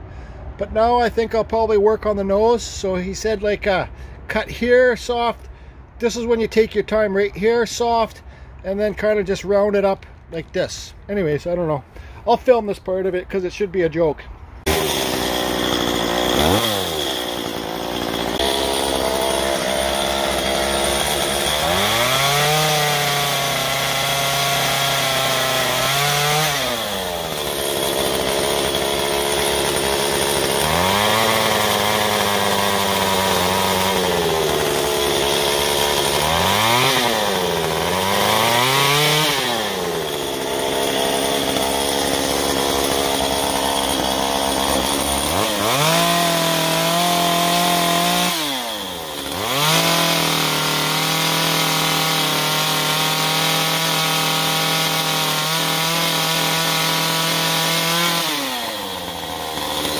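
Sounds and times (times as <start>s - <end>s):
chainsaw cutting wood: 14.6s - 59.9s.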